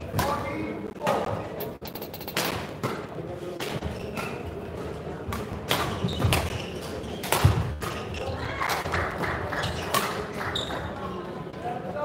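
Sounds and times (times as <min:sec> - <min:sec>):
rackets hitting shuttlecock: 0:05.3 - 0:08.1.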